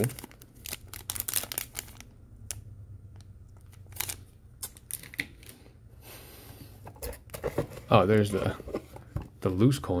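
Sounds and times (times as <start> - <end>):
plastic packaging crinkling: 0.0 - 2.2, 3.6 - 5.6.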